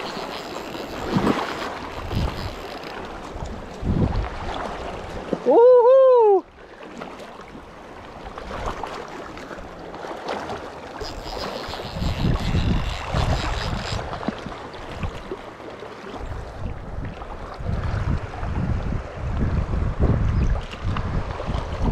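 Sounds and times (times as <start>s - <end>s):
fly reel whirring: 0.0s - 3.1s, 11.0s - 14.1s
wind on microphone: 0.0s - 6.4s, 11.0s - 15.3s, 16.2s - 21.9s
river water flowing: 0.0s - 19.8s.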